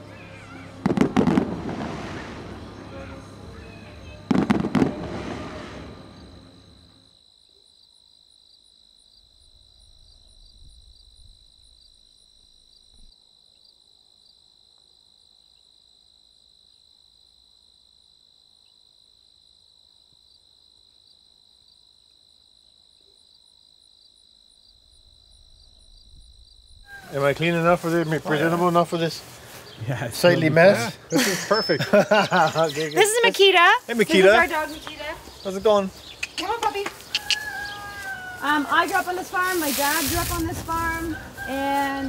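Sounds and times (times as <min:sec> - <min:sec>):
crickets chirping: 0:00.0 - 0:42.0
faint low rumbles: 0:24.7 - 0:30.3.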